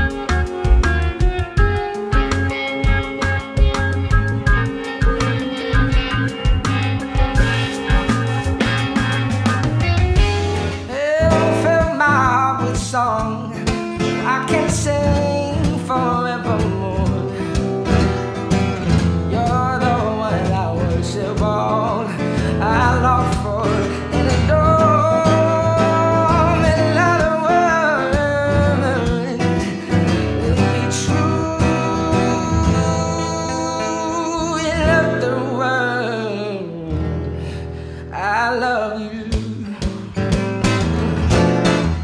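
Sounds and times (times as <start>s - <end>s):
acoustic guitar: 0.0s - 42.0s
man singing long gliding notes: 10.9s - 17.6s, 19.4s - 37.1s.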